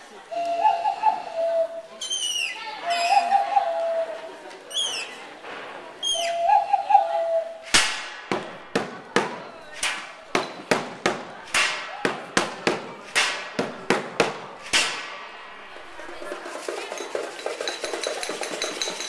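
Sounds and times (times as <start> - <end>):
whistled bird-like calls: 0.3 - 5.2, 6.0 - 7.7
metallic hits on pots and pans: 7.8 - 15.4, 16.6 - 19.0.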